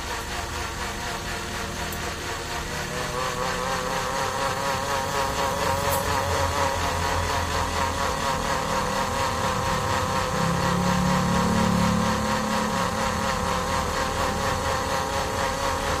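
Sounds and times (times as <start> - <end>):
electric blender running: 0.0 - 16.0.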